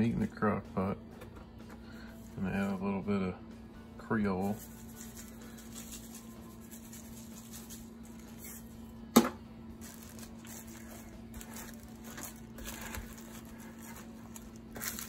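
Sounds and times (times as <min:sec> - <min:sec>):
steady low hum: 0:00.0 - 0:15.0
spatula squishing meat: 0:10.2 - 0:15.0.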